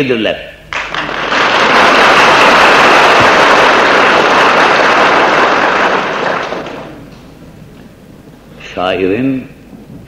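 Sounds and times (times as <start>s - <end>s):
audience applauding: 0.7s - 7.2s.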